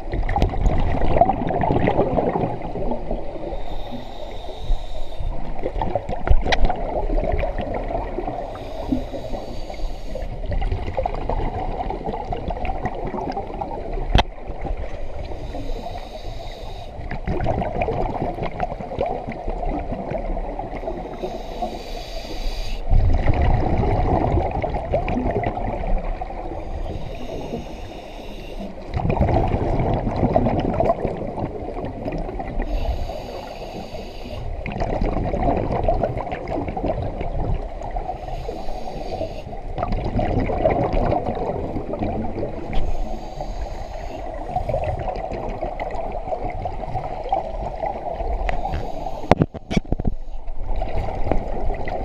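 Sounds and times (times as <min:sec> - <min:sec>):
exhaled bubbles gushing: 0:00.0 - 0:03.6, 0:05.4 - 0:09.4, 0:10.4 - 0:15.2, 0:17.0 - 0:21.1, 0:22.9 - 0:26.6, 0:28.7 - 0:32.6, 0:34.5 - 0:38.1, 0:39.6 - 0:42.8, 0:44.3 - 0:49.6, 0:50.6 - 0:52.0
regulator inhale hiss: 0:03.4 - 0:05.7, 0:08.4 - 0:10.5, 0:15.0 - 0:17.1, 0:20.7 - 0:22.9, 0:26.4 - 0:28.9, 0:32.6 - 0:34.6, 0:38.1 - 0:39.7, 0:42.6 - 0:45.1, 0:48.2 - 0:50.5.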